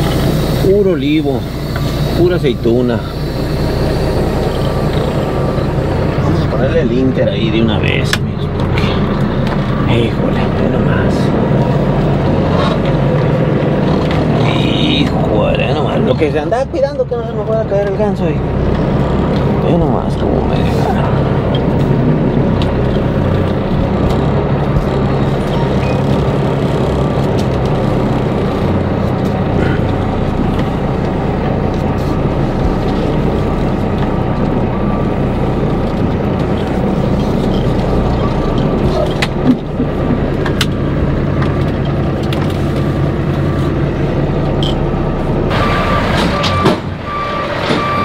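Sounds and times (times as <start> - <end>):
diesel truck engine at low revs: 0.0 - 48.0.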